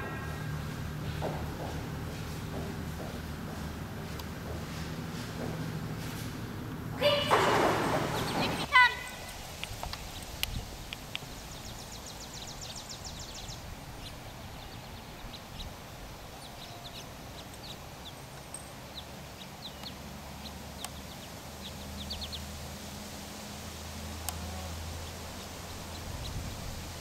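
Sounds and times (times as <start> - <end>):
small birds chirping: 6.5 - 22.7, 24.2 - 27.0.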